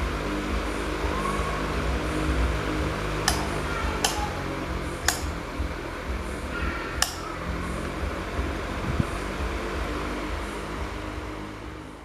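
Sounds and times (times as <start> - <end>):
air rushing from fan blades: 0.0 - 12.0
fan motor hum: 0.0 - 12.0.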